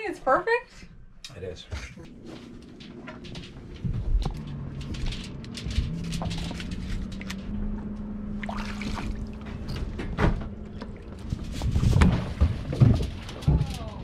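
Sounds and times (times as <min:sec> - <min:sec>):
low steady hum: 0:00.0 - 0:14.0
water sloshing and trickling: 0:04.5 - 0:14.0.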